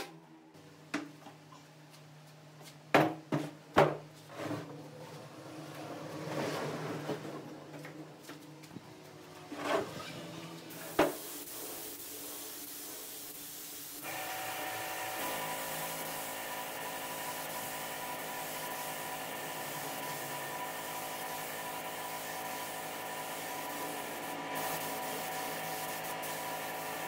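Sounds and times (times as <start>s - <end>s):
spray gun hissing: 10.7s - 27.0s.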